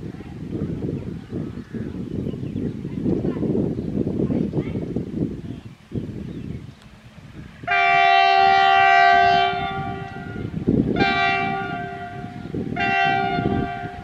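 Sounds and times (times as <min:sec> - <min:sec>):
locomotive air horn blasts: 0:07.6 - 0:14.0.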